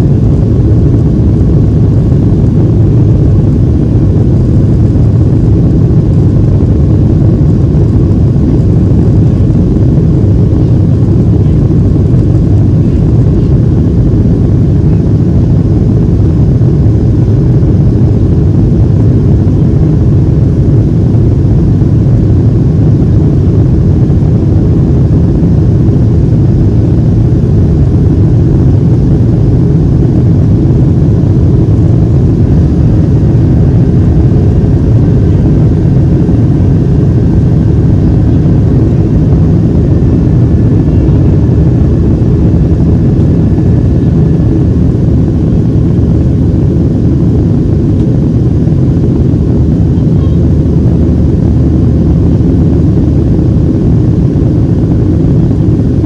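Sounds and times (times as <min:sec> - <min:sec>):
air rushing over fuselage: 0:00.0 - 0:56.0
jet engines roaring in cabin: 0:00.0 - 0:56.0.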